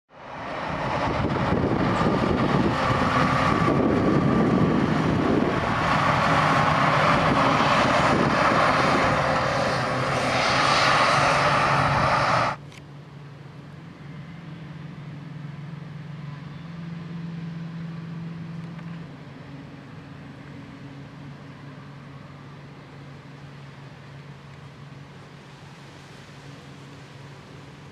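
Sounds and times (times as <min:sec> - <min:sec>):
tractor passing at speed: 0:00.1 - 0:12.6
field machinery engine hum: 0:00.1 - 0:27.9.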